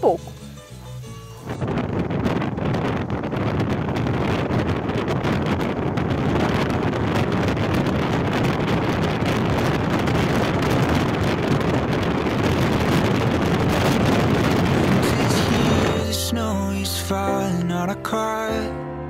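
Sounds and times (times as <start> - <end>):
car road noise: 0.0 - 16.6
wind buffeting microphone: 0.0 - 16.6.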